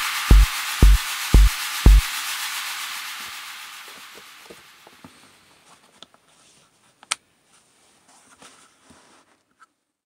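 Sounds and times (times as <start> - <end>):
background music: 0.0 - 4.4.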